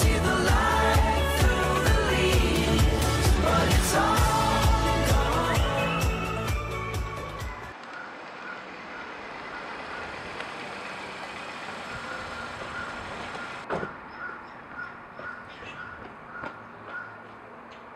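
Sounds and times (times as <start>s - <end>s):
music: 0.0s - 7.8s
steady rushing street noise: 0.0s - 17.9s.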